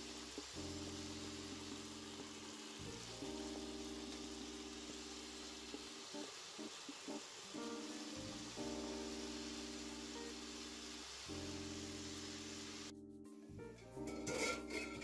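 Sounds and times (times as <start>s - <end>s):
stew sizzling in a pot: 0.0s - 12.9s, 14.0s - 15.0s
soft background music: 0.0s - 15.0s.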